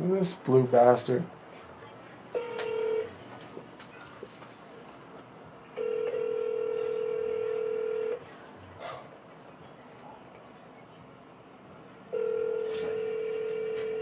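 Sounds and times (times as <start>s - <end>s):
telephone ringback tone: 2.4s - 3.1s, 5.8s - 8.2s, 12.1s - 14.0s.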